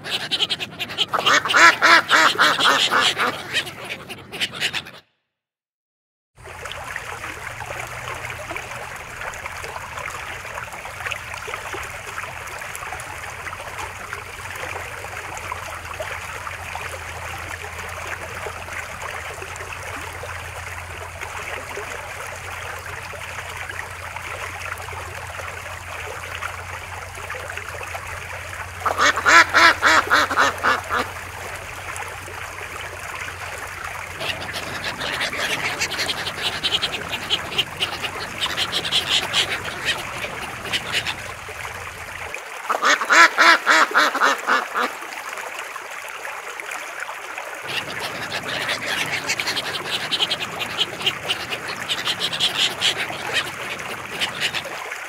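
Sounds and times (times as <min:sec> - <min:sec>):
ducks quacking: 0:00.0 - 0:05.0, 0:28.8 - 0:31.2, 0:34.1 - 0:41.4, 0:42.7 - 0:44.9, 0:47.7 - 0:54.7.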